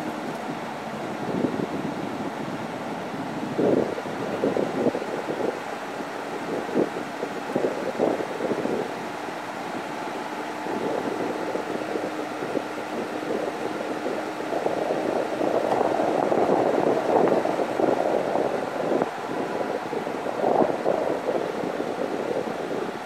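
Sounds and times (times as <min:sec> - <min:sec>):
tyres on road: 0:00.0 - 0:23.0
wind buffeting microphone: 0:00.0 - 0:23.0.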